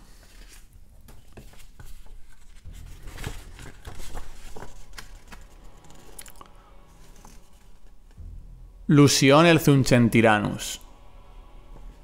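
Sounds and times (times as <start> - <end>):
sharp paper crinkles: 0.0 - 5.9
paper rustling and crackling: 0.0 - 6.4.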